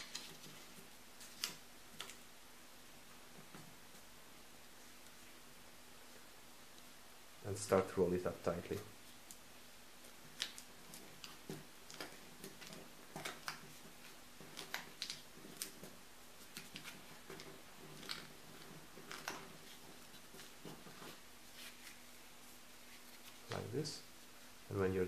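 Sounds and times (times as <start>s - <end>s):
paper crinkling: 0.0s - 2.2s, 10.0s - 23.7s
faint steady hum: 0.0s - 25.0s.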